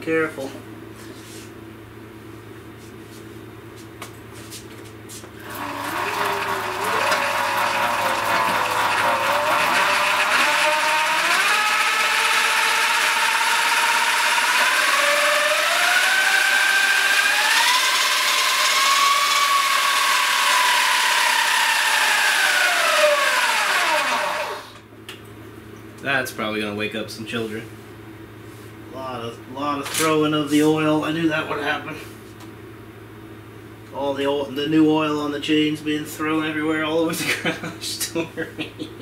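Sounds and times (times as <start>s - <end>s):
electric motor whine: 5.4s - 24.8s.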